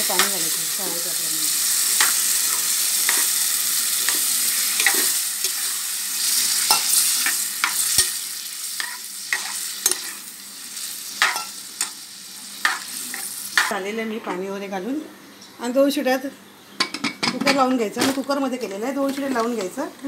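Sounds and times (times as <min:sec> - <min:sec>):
spices frying in oil: 0:00.0 - 0:14.4.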